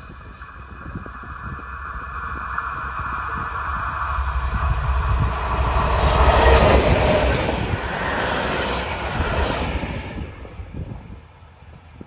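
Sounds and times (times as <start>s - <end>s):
diesel locomotive passing: 0.0s - 12.0s
train wheels rumbling on rails: 0.0s - 12.0s.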